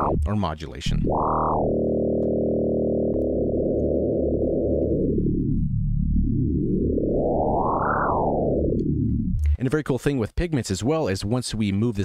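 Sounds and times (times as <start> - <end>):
sustained synthesizer note: 0.0 - 9.6.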